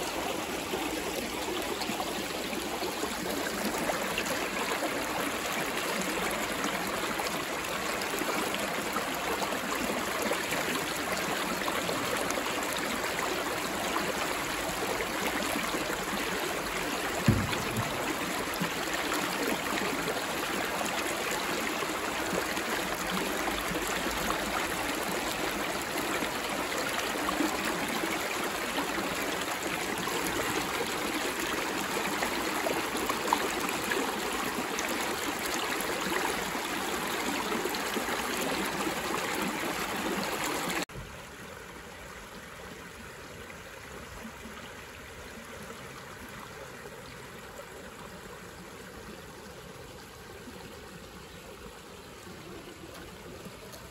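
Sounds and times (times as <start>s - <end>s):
creek water rushing over rocks: 0.0s - 53.9s
low thump: 17.2s - 18.5s.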